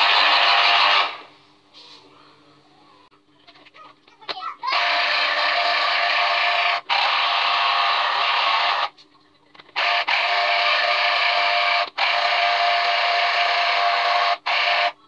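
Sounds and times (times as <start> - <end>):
citrus juicer motor whirring: 0.0 - 1.3, 4.6 - 8.9, 9.7 - 15.0.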